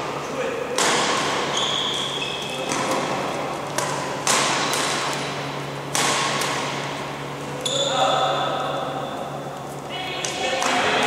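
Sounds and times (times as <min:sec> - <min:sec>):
rackets hitting a shuttlecock: 0:00.7 - 0:07.8, 0:10.2 - 0:11.0
shoes squeaking on court floor: 0:01.2 - 0:10.4.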